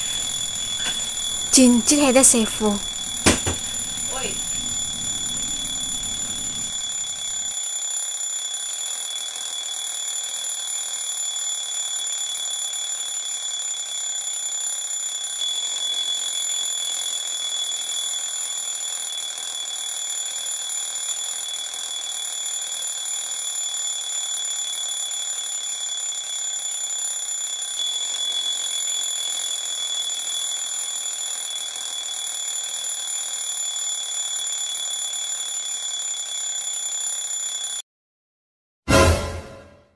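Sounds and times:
high-pitched electronic alarm tone: 0.0s - 37.8s.

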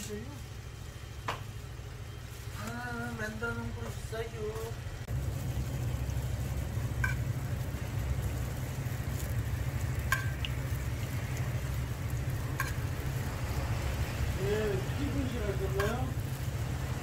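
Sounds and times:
dough sizzling in oil: 0.0s - 17.0s
low rumble: 2.9s - 17.0s.

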